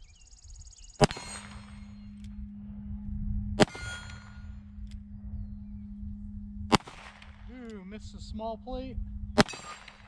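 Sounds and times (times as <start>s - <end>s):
steady low hum: 0.0s - 10.0s
revolver shot: 1.0s - 2.0s, 3.6s - 4.5s, 6.7s - 7.6s, 9.4s - 10.0s
revolver hammer clicks: 1.0s - 2.4s
metallic ringing: 1.0s - 3.0s, 3.6s - 8.0s, 9.4s - 10.0s.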